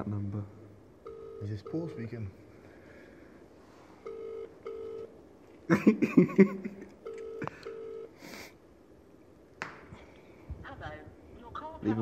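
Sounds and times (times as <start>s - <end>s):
phone ringback tone: 1.0s - 2.1s, 4.0s - 5.1s, 7.0s - 8.2s.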